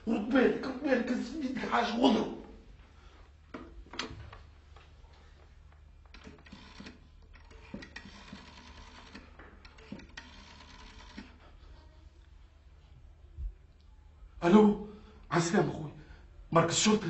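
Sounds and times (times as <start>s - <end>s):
faint steady hum: 0.0s - 17.0s
telephone dial whirring and clicking: 6.0s - 11.5s.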